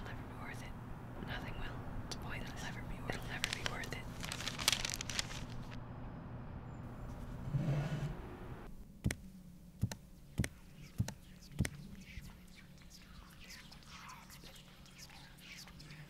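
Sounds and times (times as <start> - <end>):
whispery rustling noise: 2.3 - 5.8, 10.2 - 16.0.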